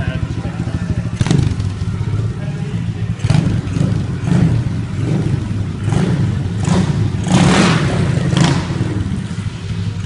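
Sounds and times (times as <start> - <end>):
motorbike engine revving: 0.0 - 10.0.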